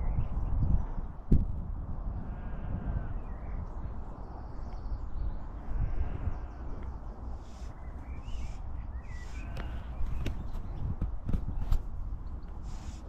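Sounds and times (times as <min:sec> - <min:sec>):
steady low rumble: 0:00.0 - 0:12.8
faint bird chirps: 0:02.3 - 0:10.9.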